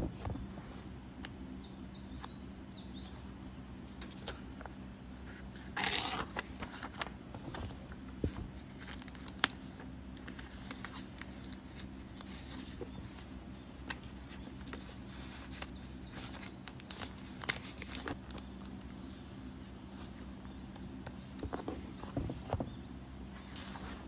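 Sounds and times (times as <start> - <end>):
faint low hum: 0.0 - 24.0
paper pages rustling: 5.3 - 18.8, 23.3 - 24.0.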